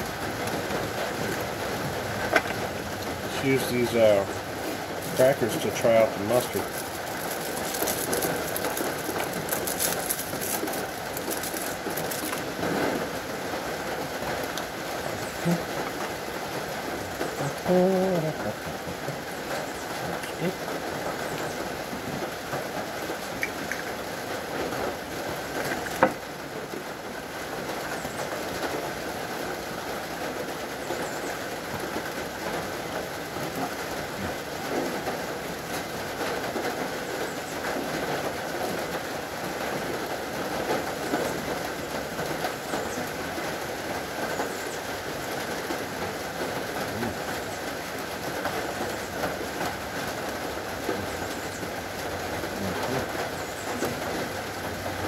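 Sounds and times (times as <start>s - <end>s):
rain on roof: 0.0s - 55.0s
cracker packets rustling: 5.0s - 13.2s.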